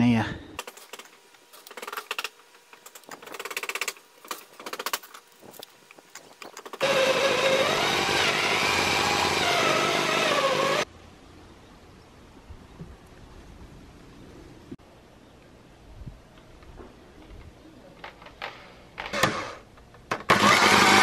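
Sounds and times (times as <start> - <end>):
electric drill boring through wood: 6.8 - 10.9, 19.1 - 19.6, 20.2 - 21.0.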